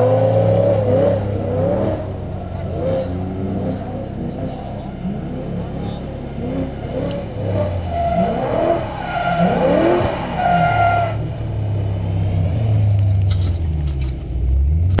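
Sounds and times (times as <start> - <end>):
tyre squeal: 0.0 - 11.2
car engine running hard: 0.0 - 15.0.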